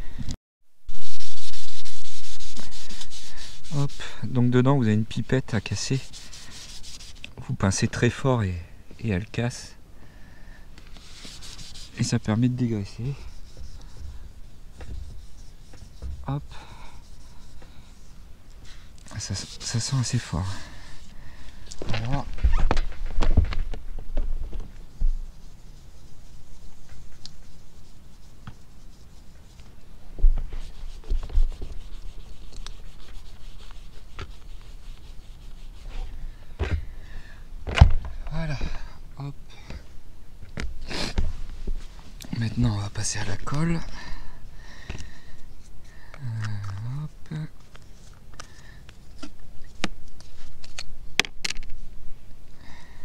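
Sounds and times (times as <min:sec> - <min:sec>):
wipe scrubbing on a roof: 0:01.0 - 0:07.3, 0:11.0 - 0:18.2, 0:19.1 - 0:21.1, 0:24.9 - 0:29.6, 0:30.4 - 0:36.1.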